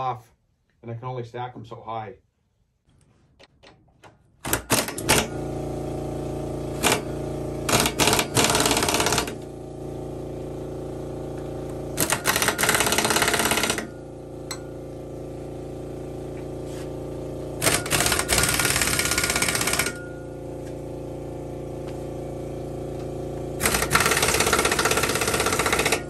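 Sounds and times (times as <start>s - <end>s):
pneumatic impact wrench hammering: 4.4s - 5.6s, 6.6s - 9.6s, 11.3s - 15.4s, 16.5s - 20.9s, 22.9s - 26.0s
steady machine hum: 4.4s - 26.0s.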